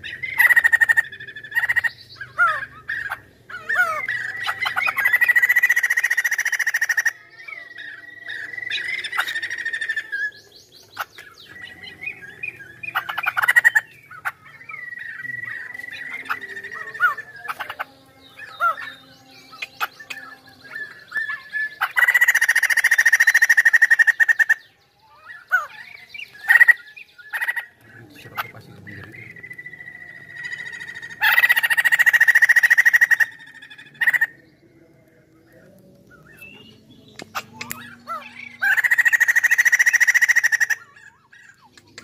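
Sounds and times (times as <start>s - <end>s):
bird calls and held whistle: 0.0s - 42.0s
bird chattering song: 0.0s - 42.0s.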